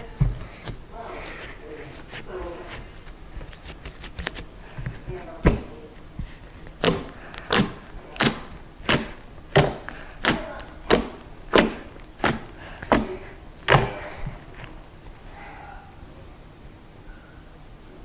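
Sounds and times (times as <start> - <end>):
fingertips squishing slime: 0.0 - 15.3.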